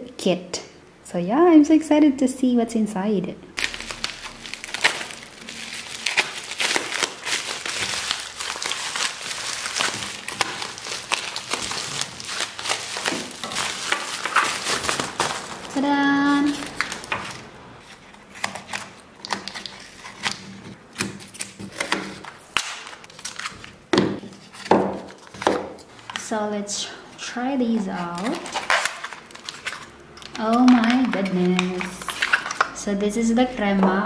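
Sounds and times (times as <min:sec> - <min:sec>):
bubble wrap crinkling: 0:03.6 - 0:26.4, 0:27.2 - 0:32.8
cardboard boxes handled: 0:04.7 - 0:18.9.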